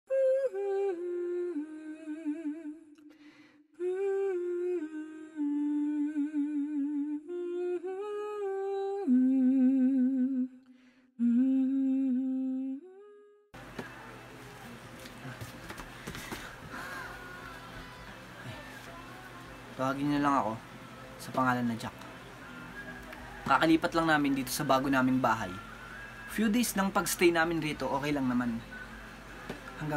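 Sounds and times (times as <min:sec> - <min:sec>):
person humming a slow melody: 0:00.1 - 0:03.2, 0:03.8 - 0:15.4.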